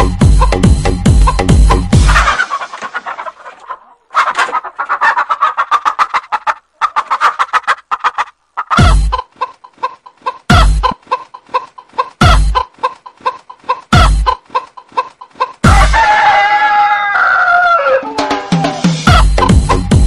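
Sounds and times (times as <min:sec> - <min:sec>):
chicken clucking samples: 0:01.2 - 0:18.3, 0:19.1 - 0:19.8
rooster-like crow: 0:15.6 - 0:19.1.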